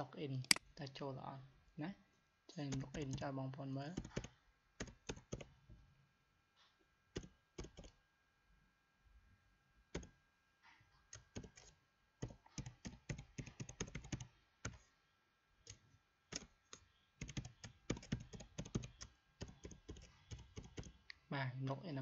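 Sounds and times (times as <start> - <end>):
typing on computer keyboard: 2.7 - 3.2, 3.9 - 5.5, 7.1 - 8.0, 9.9 - 10.2, 11.0 - 14.9, 15.6 - 21.1.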